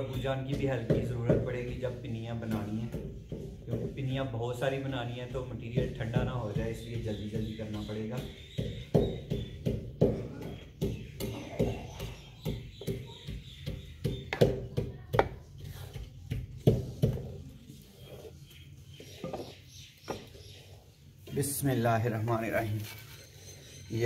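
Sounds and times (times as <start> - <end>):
wooden pestle pounding in mortar: 0.0 - 17.5.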